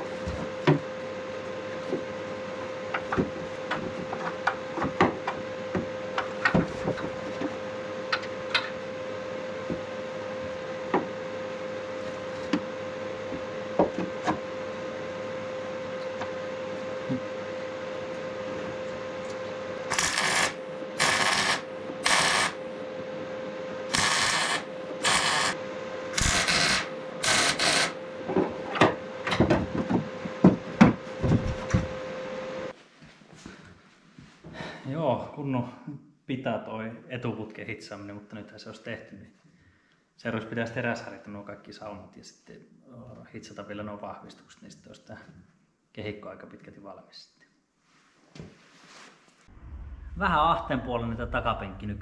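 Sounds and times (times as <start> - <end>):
steady hum: 0.0 - 32.8, 49.4 - 52.0
short welding bursts: 19.9 - 22.6, 23.9 - 25.5, 26.2 - 27.9.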